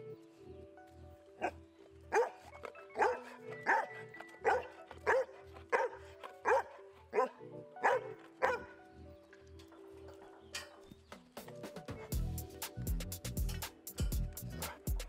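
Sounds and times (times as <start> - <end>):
dog barking: 1.4 - 2.4, 3.0 - 8.7
background music with beat: 9.2 - 15.0.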